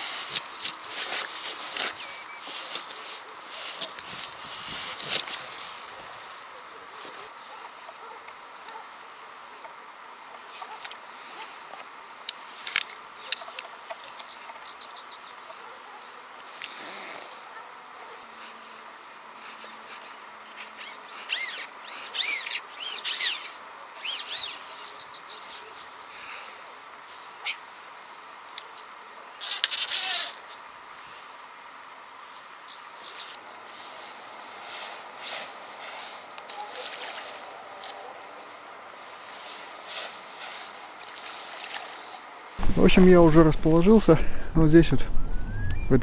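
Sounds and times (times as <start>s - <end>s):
scraping rustle with clicks: 0.0s - 6.4s
steady background hiss: 0.0s - 46.0s
short high bird calls: 20.8s - 25.8s, 29.4s - 30.4s, 45.0s - 46.0s
bird calling high notes: 44.9s - 46.0s.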